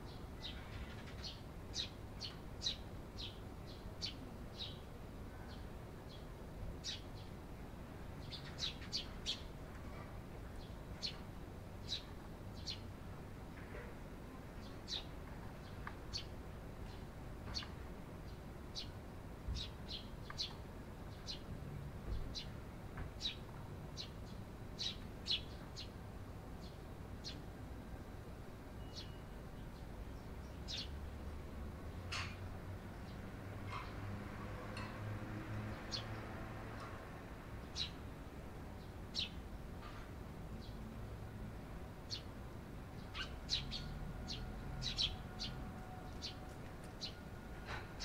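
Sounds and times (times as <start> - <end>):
sparrow chirps: 28.8 - 31.0, 37.6 - 38.0, 39.1 - 40.0, 43.0 - 48.0.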